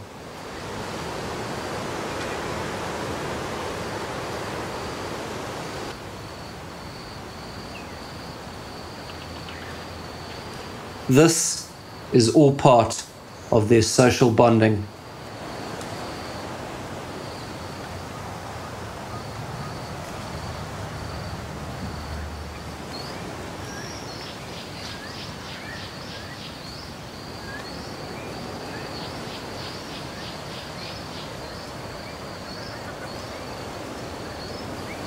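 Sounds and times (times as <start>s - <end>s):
steady soft hiss: 0.0s - 35.0s
birds chirping: 17.1s - 35.0s.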